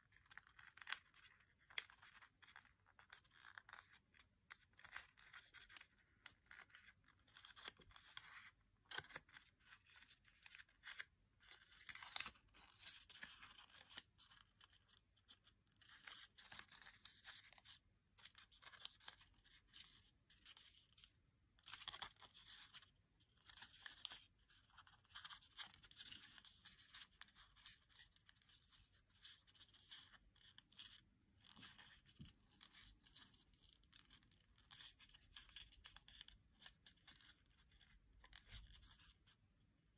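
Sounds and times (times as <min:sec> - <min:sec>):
paper crinkling and rustling: 0:00.0 - 0:39.4.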